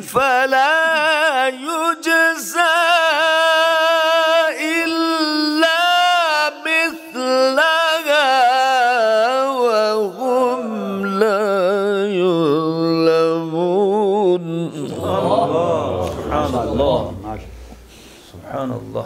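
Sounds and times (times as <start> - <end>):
man reciting melodically into microphone: 0.0 - 19.0.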